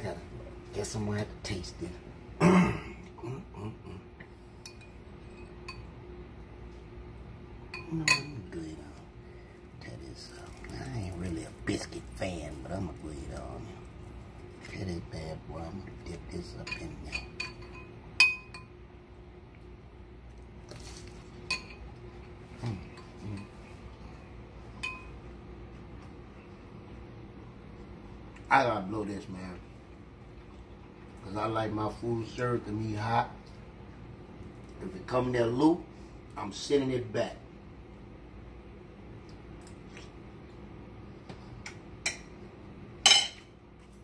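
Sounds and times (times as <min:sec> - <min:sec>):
faint steady hum: 0:00.0 - 0:44.0
spoon clinking on ceramic bowl: 0:04.7 - 0:05.9, 0:07.7 - 0:08.4, 0:16.6 - 0:18.7, 0:24.8 - 0:25.2
spoon clinking ceramic bowl: 0:07.7 - 0:08.4, 0:24.8 - 0:25.2.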